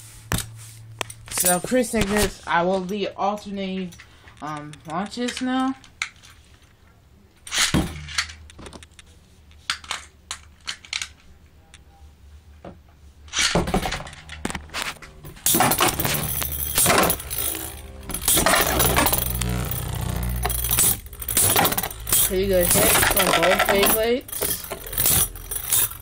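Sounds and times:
spinning tops clashing metallic clatter: 15.4 - 26.0.

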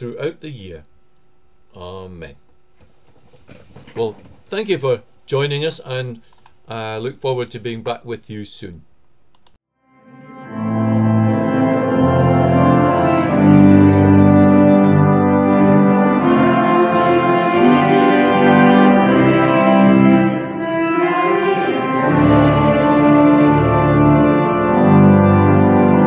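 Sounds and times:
pipe organ playing a hymn: 10.0 - 26.0.

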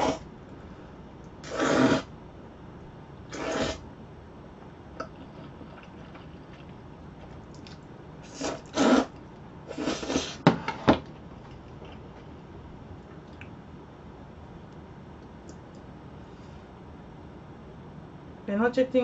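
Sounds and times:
noodles being slurped: 1.4 - 2.1, 3.3 - 3.8, 7.5 - 10.4.

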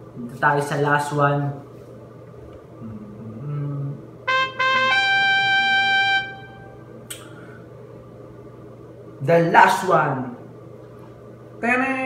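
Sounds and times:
trumpet sting: 4.3 - 6.9.

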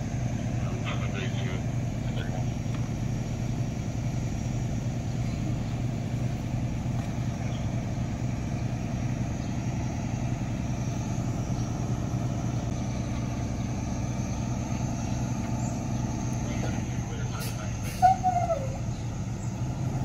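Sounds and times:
vehicle engines idling: 0.0 - 20.0.

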